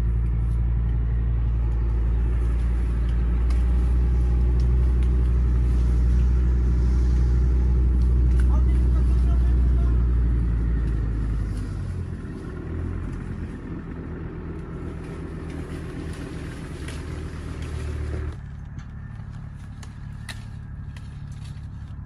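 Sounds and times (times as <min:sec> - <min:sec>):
engine low rumble: 0:00.0 - 0:22.0.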